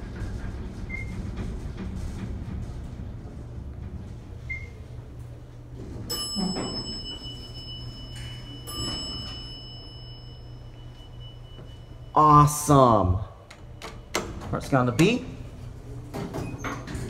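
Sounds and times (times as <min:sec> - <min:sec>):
elevator doors sliding open: 0:00.0 - 0:10.1, 0:12.6 - 0:17.0
steady low hum: 0:00.0 - 0:16.6
elevator bell chime: 0:06.1 - 0:14.2.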